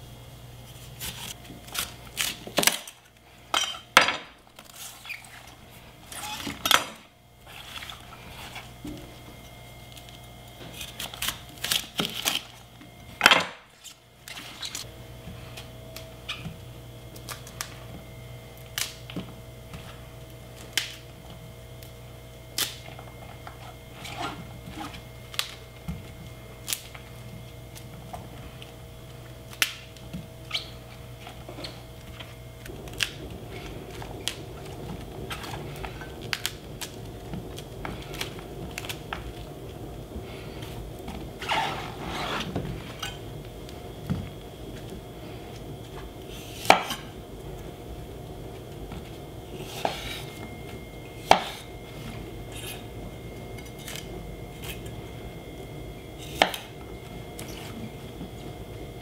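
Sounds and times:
florets snapping: 0:18.7 - 0:19.1.

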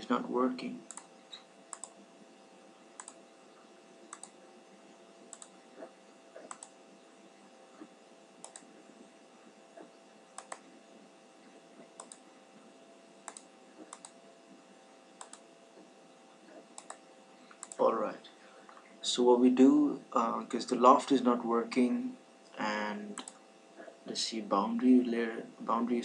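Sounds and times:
faint electrical hum and hiss: 0:00.0 - 0:26.0
computer mouse clicking: 0:00.9 - 0:02.0, 0:03.0 - 0:03.2, 0:04.1 - 0:04.4, 0:05.2 - 0:06.8, 0:07.8 - 0:08.7, 0:09.8 - 0:10.7, 0:11.8 - 0:12.2, 0:13.2 - 0:14.2, 0:15.2 - 0:15.4, 0:16.5 - 0:17.8, 0:23.2 - 0:23.4.

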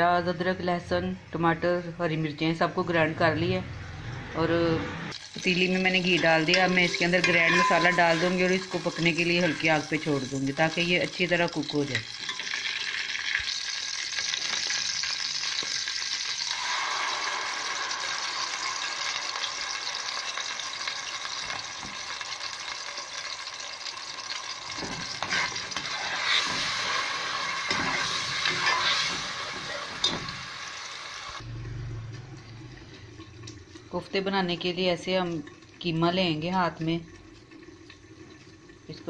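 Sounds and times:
paste sizzling in ghee: 0:05.1 - 0:31.4
metal spoon stirring: 0:05.4 - 0:10.4, 0:24.8 - 0:30.3.

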